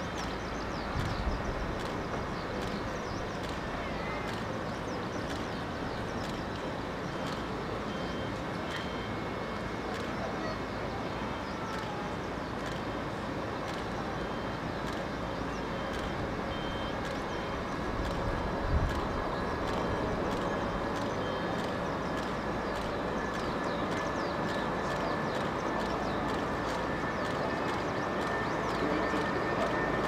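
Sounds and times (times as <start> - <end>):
distant jet rumble: 9.4 - 30.0.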